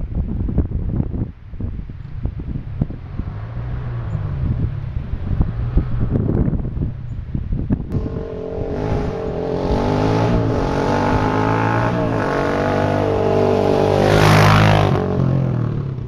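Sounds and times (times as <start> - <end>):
quad bike engine passing: 3.1 - 7.0, 7.9 - 16.0.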